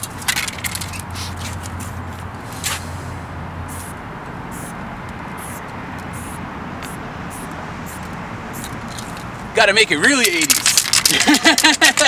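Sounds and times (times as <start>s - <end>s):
spray paint can hissing: 0.0s - 2.9s, 3.7s - 4.8s, 5.4s - 9.2s, 10.2s - 12.0s.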